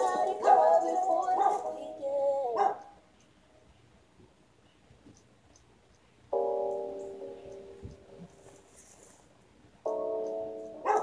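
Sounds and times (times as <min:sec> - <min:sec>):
dog barking: 0:00.4 - 0:00.8, 0:01.4 - 0:01.7, 0:02.6 - 0:03.0, 0:10.8 - 0:11.0.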